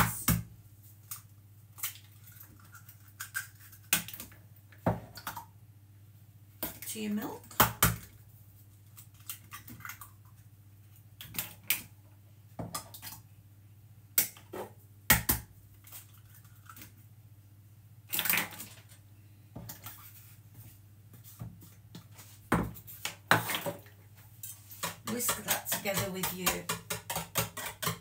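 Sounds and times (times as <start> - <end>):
eggs cracking: 1.8 - 4.4.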